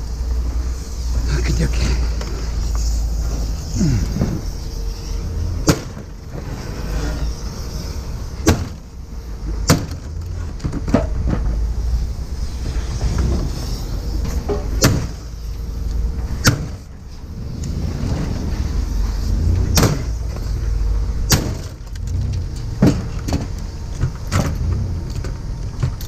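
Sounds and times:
road rumble: 0.0s - 26.0s
sharp knocks: 5.6s - 6.1s, 8.4s - 8.8s, 14.2s - 15.2s, 19.7s - 20.2s, 21.3s - 21.8s.

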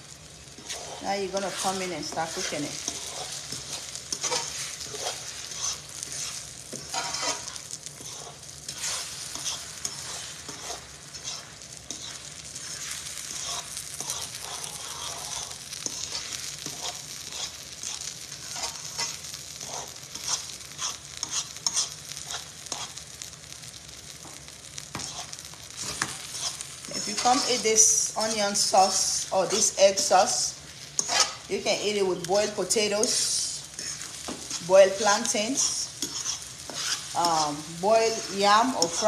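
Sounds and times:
food sizzling in a frying pan: 0.0s - 39.0s
fork scraping and clicking on pan: 2.4s - 23.0s, 24.2s - 27.5s, 31.0s - 31.5s, 33.8s - 34.6s, 35.2s - 37.2s.

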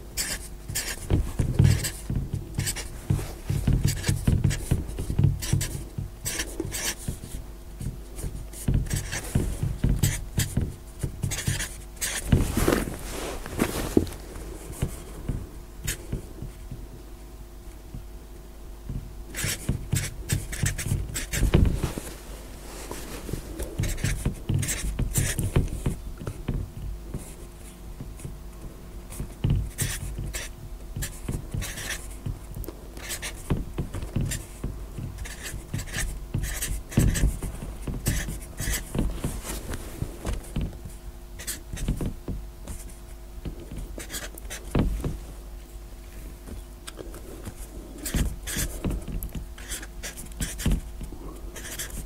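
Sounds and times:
faint steady hum: 0.0s - 52.0s
marker writing on paper: 0.2s - 12.8s, 14.6s - 16.7s, 19.3s - 22.1s, 22.8s - 26.3s, 29.1s - 32.2s, 33.0s - 39.7s, 40.3s - 42.1s, 42.7s - 45.2s, 46.9s - 51.0s, 51.6s - 52.0s.

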